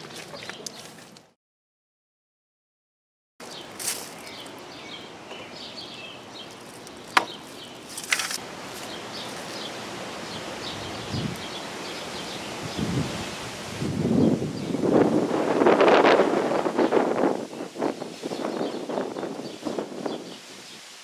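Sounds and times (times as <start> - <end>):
small birds chirping: 0.0 - 1.0, 3.4 - 13.4, 14.2 - 14.9, 16.8 - 20.9
short rustle: 6.5 - 9.7.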